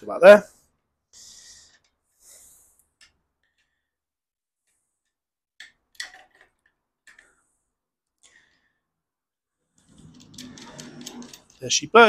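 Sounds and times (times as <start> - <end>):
metal parts clicking: 5.6 - 7.3, 9.8 - 11.9
metal parts scraping: 9.8 - 12.0.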